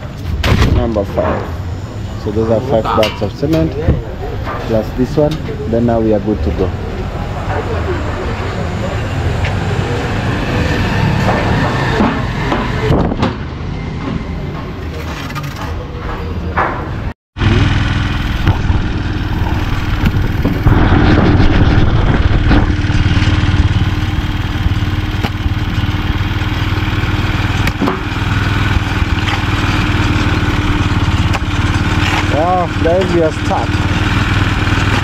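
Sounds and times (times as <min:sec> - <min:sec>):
street noise: 0:00.0 - 0:35.0
motor-tricycle engine running: 0:17.4 - 0:35.0.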